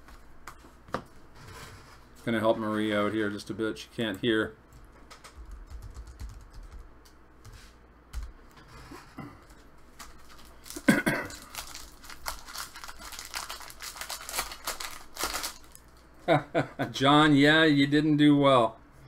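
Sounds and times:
wrapper crinkling and tearing: 9.9 - 16.0.

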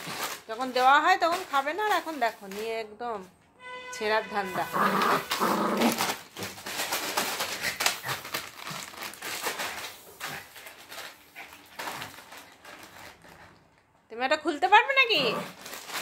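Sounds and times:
plastic packet crinkling: 0.0 - 2.9, 4.6 - 14.1, 14.7 - 16.0.

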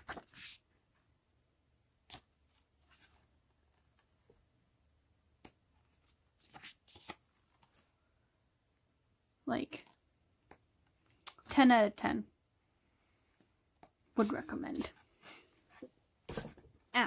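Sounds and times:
pages turning: 0.0 - 0.6, 6.0 - 7.8.

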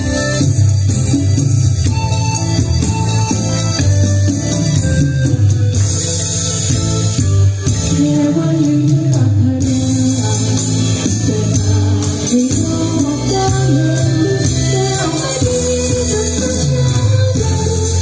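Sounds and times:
woman singing into a microphone: 7.9 - 18.0.

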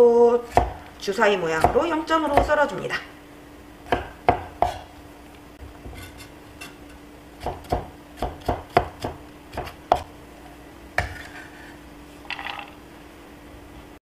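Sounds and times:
cleaver chopping on wooden board: 0.5 - 0.8, 3.9 - 4.9, 7.4 - 10.1
blade scraping board: 11.0 - 11.8.

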